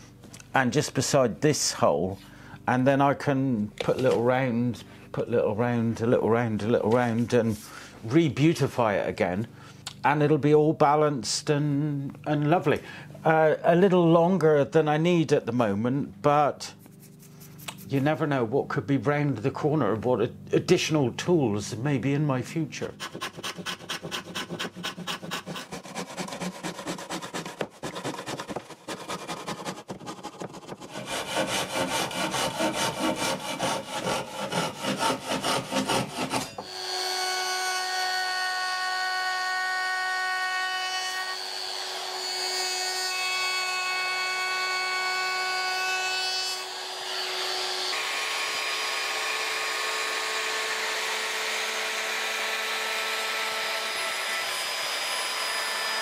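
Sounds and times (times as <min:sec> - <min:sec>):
handsaw cutting through board: 0:22.8 - 0:37.9
electric router whining: 0:36.6 - 0:45.8, 0:46.5 - 0:56.0.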